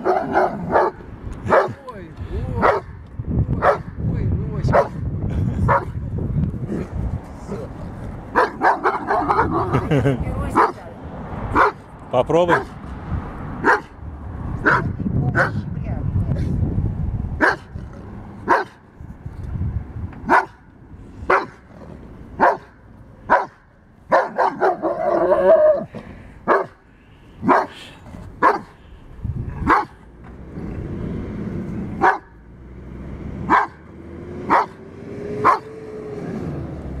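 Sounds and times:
puppy barking: 0.0 - 1.8, 2.6 - 2.9, 3.6 - 3.9, 4.7 - 5.0, 5.7 - 5.9, 8.3 - 9.9, 10.6 - 10.8, 11.5 - 11.8, 12.5 - 12.8, 13.6 - 14.0, 14.6 - 15.6, 17.4 - 17.8, 18.4 - 18.8, 20.3 - 20.7, 21.3 - 21.6, 22.4 - 25.9, 26.5 - 26.8, 27.4 - 27.8, 28.4 - 28.8, 29.6 - 30.0, 32.0 - 32.4, 33.5 - 33.8, 34.5 - 34.8, 35.4 - 35.8.

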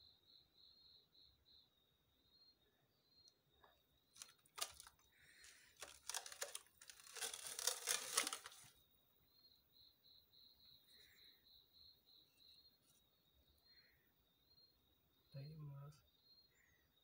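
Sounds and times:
crickets chirping: 0.0 - 17.0
plastic rustling and crinkling: 4.2 - 8.7.

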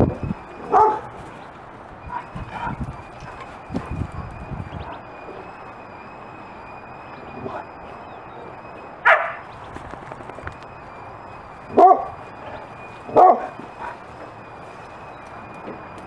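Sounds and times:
dog barking: 0.7 - 1.1, 9.0 - 9.4, 11.8 - 12.2, 13.1 - 14.0.

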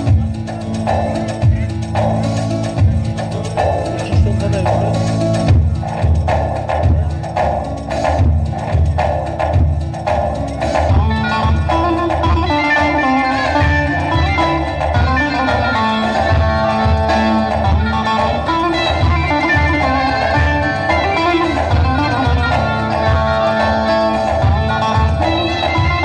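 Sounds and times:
steady low beat: 0.0 - 26.0
long-necked lute strummed and picked: 10.8 - 26.0.

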